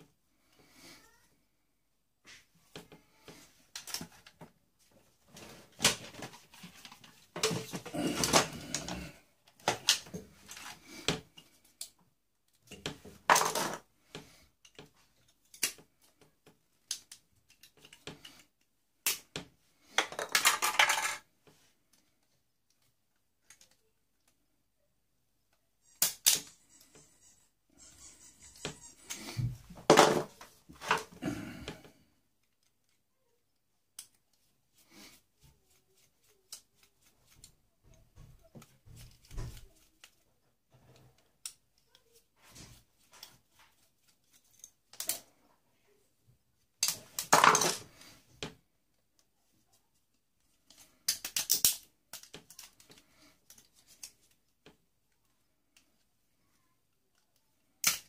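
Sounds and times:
small parts clicking and clattering: 3.7 - 4.5, 5.8 - 24.4, 25.8 - 45.5, 46.8 - 48.5, 50.0 - 56.1, 56.9 - 58.0.

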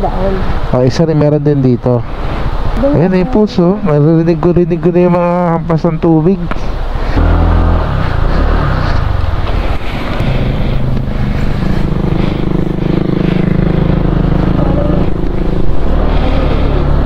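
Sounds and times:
rushing noise: 0.0 - 17.0
motorcycle engine running: 7.2 - 17.0.

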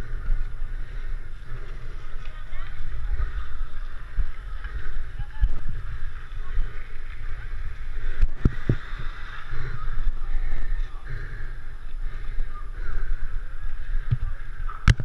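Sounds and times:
skate wheels rolling on asphalt: 0.0 - 11.0
wind buffeting microphone: 0.0 - 15.0.

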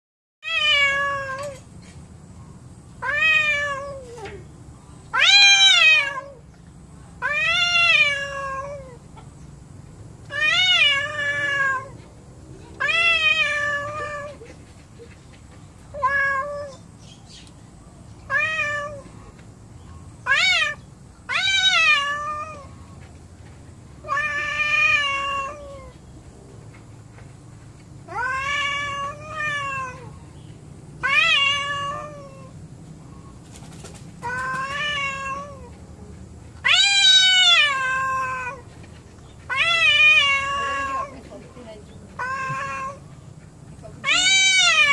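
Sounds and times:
angry cat yowling: 5.1 - 6.4, 7.2 - 9.0, 10.3 - 12.0, 12.7 - 14.6, 20.3 - 22.7, 28.1 - 30.1, 31.0 - 32.5, 34.2 - 35.7, 36.6 - 38.7, 39.5 - 41.2, 42.2 - 43.1, 44.0 - 44.9.

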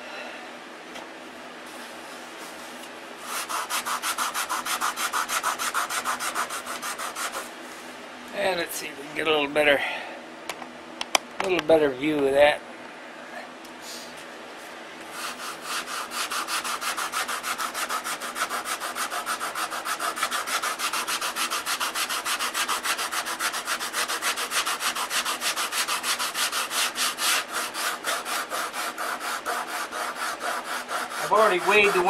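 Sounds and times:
sandpaper rubbing on wood: 1.8 - 7.5, 15.1 - 32.0.

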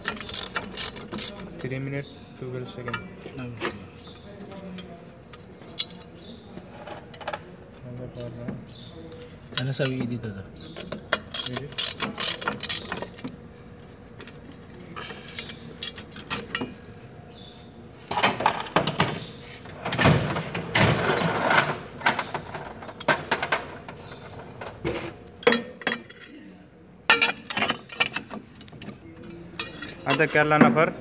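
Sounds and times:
wrench and sockets clinking: 0.0 - 1.7, 5.6 - 6.2, 10.8 - 13.3, 27.1 - 30.5.

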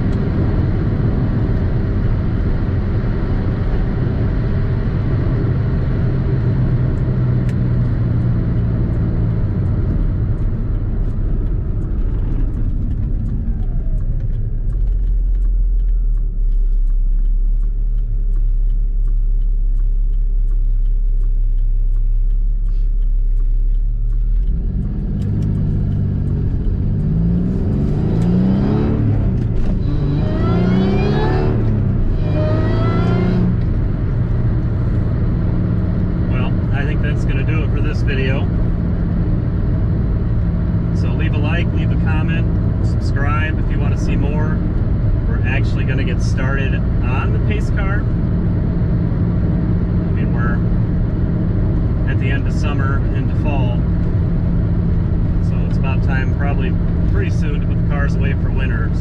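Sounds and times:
car engine driving and accelerating: 0.0 - 59.0.

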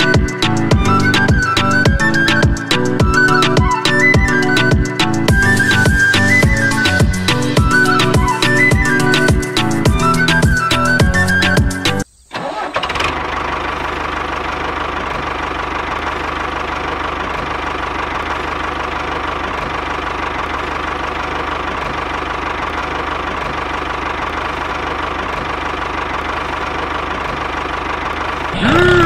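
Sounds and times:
tractor engine running: 0.0 - 29.0.

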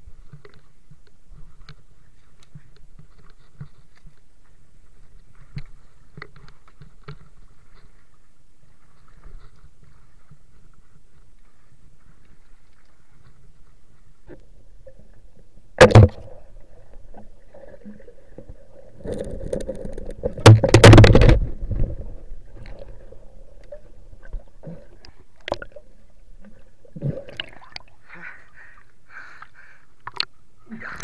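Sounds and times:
sharp double knock underwater: 15.8 - 16.4
water bubbling and splashing: 15.8 - 28.1.

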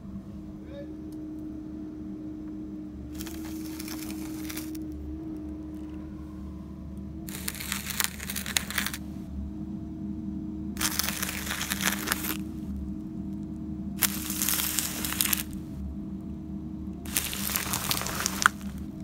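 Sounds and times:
low machine hum: 0.0 - 19.0
crunching and crackling in soil: 3.1 - 6.0, 7.2 - 9.2, 10.8 - 15.8, 17.0 - 19.0.

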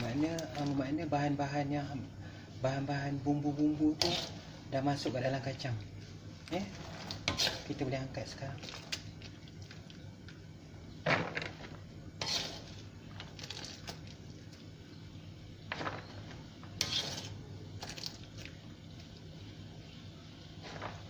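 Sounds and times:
wet scraping: 4.0 - 4.5, 6.5 - 7.8, 11.0 - 14.6, 15.7 - 19.2, 20.6 - 21.0.

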